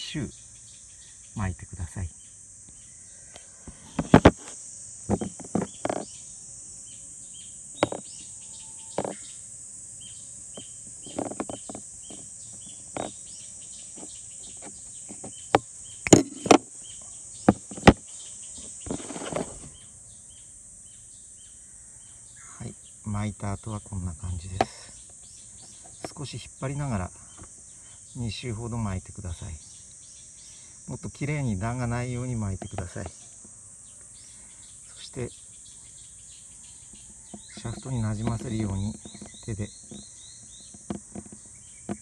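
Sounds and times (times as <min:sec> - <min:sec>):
crickets chirring: 0:00.0 - 0:42.0
handling clicks and knocks: 0:03.9 - 0:04.5, 0:05.1 - 0:06.1, 0:07.8 - 0:08.2, 0:09.0 - 0:09.2, 0:10.6 - 0:13.2, 0:13.9 - 0:16.7, 0:17.5 - 0:18.1, 0:37.3 - 0:42.0.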